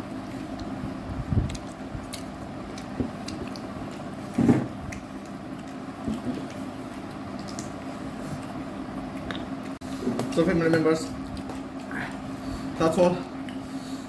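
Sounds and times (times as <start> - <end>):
steady low hum: 0.0 - 14.0
chewing: 1.4 - 9.8, 11.2 - 12.5.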